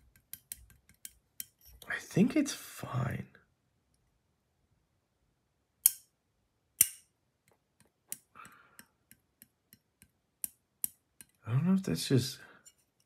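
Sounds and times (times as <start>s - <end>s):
sharp clicks of knife parts: 5.8s - 6.1s, 6.8s - 7.1s.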